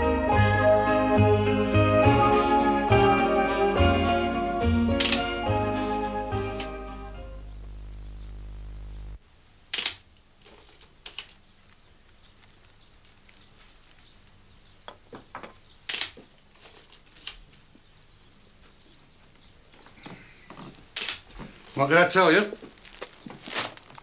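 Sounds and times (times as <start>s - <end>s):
low music chord: 0.0s - 7.7s
camera shutter click: 5.0s - 6.8s, 9.7s - 11.3s
faint bird chirps: 7.3s - 9.0s.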